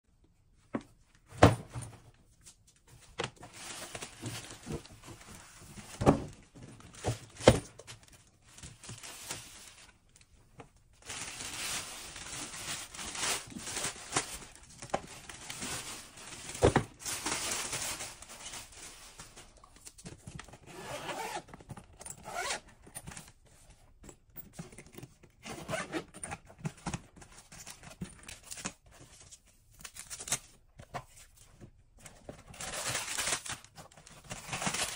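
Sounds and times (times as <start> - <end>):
packaging rustling and tearing: 3.4 - 10.3, 11.0 - 21.7, 26.3 - 31.2, 32.0 - 34.9.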